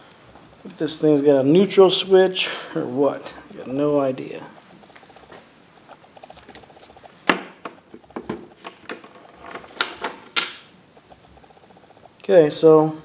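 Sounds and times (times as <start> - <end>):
keys jangling: 8.2 - 10.7.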